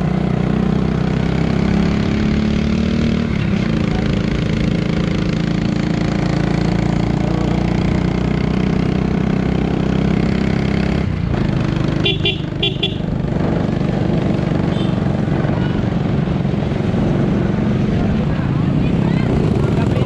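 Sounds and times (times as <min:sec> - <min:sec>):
small motorcycle engine running: 0:03.6 - 0:17.1.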